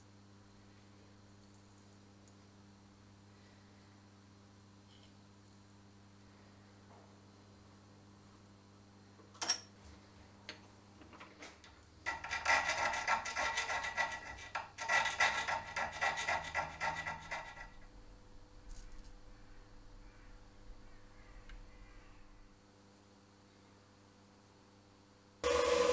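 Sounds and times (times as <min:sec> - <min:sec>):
hand file rasping on metal: 0:12.0 - 0:17.9.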